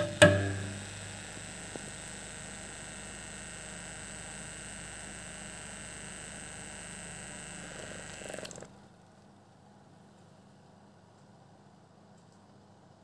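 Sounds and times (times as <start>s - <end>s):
motor buzzing hum: 0.0s - 8.8s.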